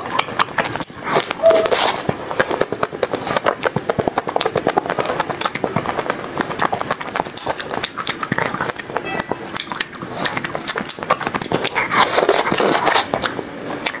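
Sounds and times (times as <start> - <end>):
chewing ice cream bar: 0.0 - 14.0.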